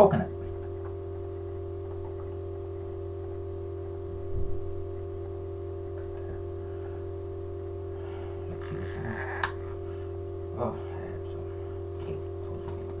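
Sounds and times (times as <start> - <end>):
droning hum: 0.0 - 13.0.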